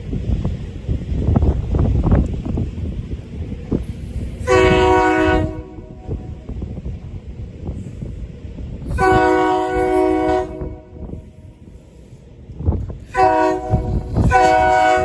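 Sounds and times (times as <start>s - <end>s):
train rumble: 0.0s - 15.0s
train horn blasts: 4.4s - 6.1s, 8.9s - 11.2s, 13.1s - 15.0s.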